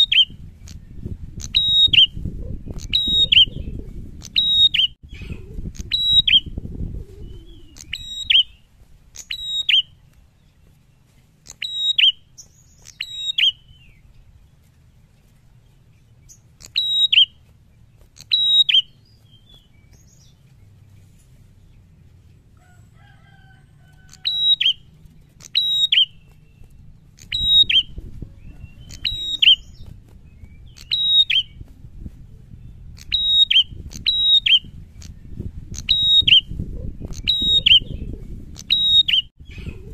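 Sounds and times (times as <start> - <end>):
bird chirping: 0.0 - 6.6, 7.2 - 23.0, 23.9 - 31.7, 32.5 - 39.9
wings fluttering against a cage: 5.1 - 33.1.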